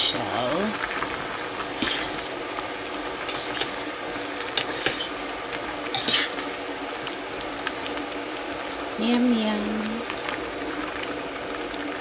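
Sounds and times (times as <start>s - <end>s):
soup simmering hiss: 0.0s - 12.0s
metal spoon scraping a pot: 3.3s - 3.8s, 4.6s - 5.2s, 5.9s - 6.4s.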